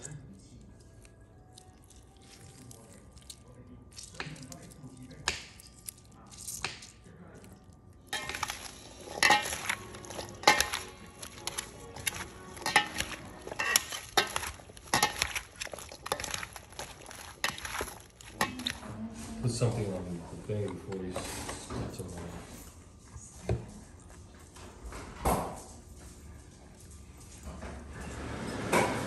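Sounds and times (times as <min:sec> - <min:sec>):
wet squishing: 0:00.0 - 0:18.9
utensil scraping a bowl: 0:08.1 - 0:19.6.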